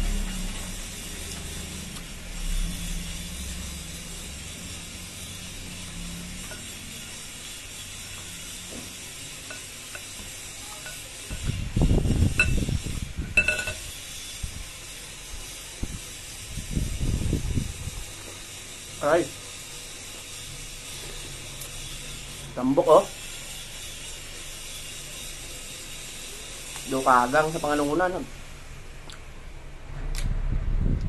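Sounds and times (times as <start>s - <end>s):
short ringing clinks: 13.4s - 14.0s.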